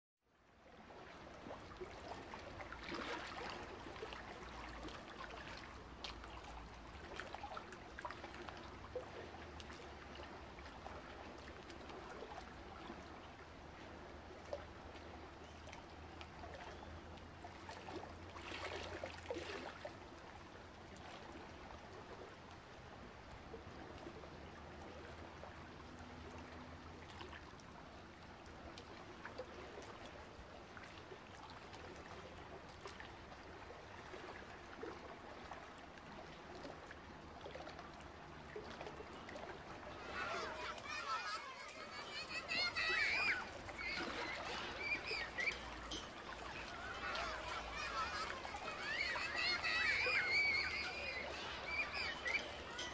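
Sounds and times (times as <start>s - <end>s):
water trickling into a tank: 30.0s - 52.9s.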